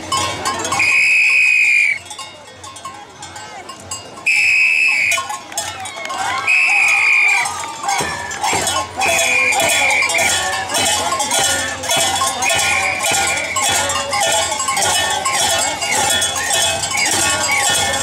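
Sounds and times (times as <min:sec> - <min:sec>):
bells clanging rhythmically: 0:00.0 - 0:18.0
high-pitched voices: 0:06.2 - 0:18.0.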